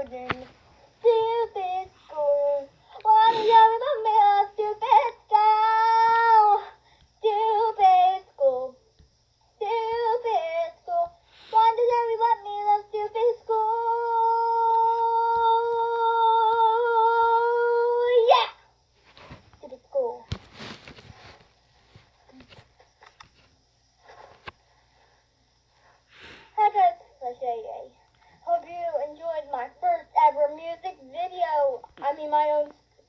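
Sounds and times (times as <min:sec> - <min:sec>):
girl singing unaccompanied: 0:00.0 - 0:18.8, 0:19.5 - 0:20.4, 0:26.3 - 0:33.0.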